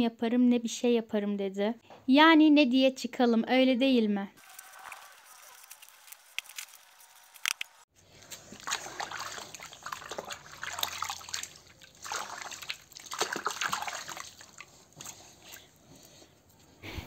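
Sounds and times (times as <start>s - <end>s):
hands sloshing in bowl of water: 8.1s - 15.8s.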